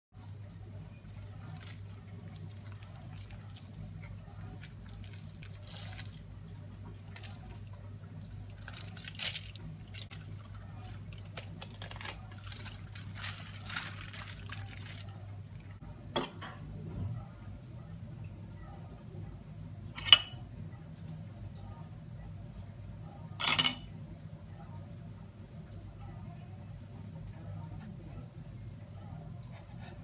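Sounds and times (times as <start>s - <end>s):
foil wrapper crinkling: 4.9s - 6.2s, 8.4s - 15.2s.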